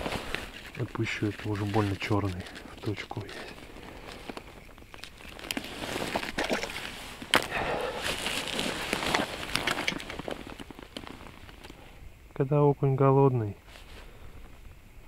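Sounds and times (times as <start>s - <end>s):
clothing rustling: 0.0s - 11.8s.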